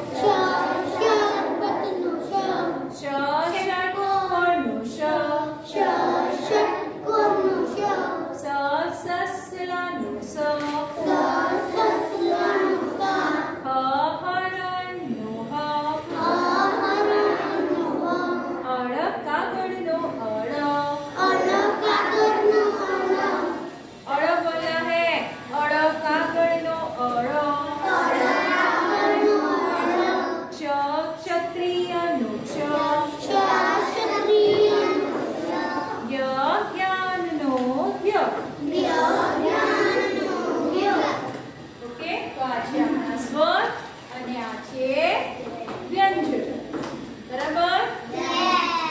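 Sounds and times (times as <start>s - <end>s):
children chanting in unison: 0.0s - 8.6s, 10.7s - 13.7s, 15.9s - 18.8s, 20.5s - 24.0s, 27.2s - 30.6s, 32.4s - 36.3s, 38.4s - 41.7s, 48.0s - 48.9s.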